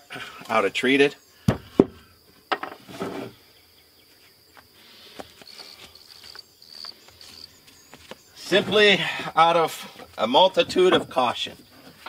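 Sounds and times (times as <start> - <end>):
insects trilling: 0.0 - 12.0
knocks of wood and tools: 1.5 - 2.8.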